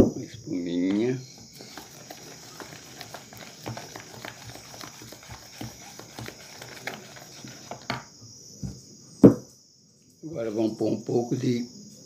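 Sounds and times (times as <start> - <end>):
spoon tapping plastic bowl: 0.8 - 8.1.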